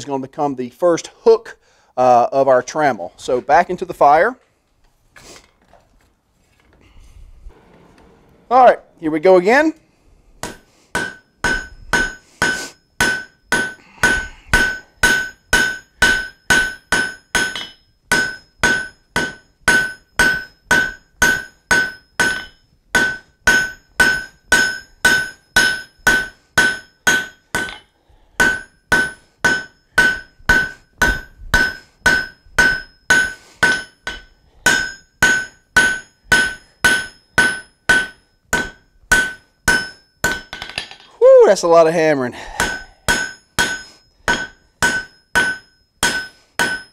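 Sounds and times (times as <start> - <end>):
hammer striking steel on anvil: 10.4 - 41.2, 42.4 - 46.9.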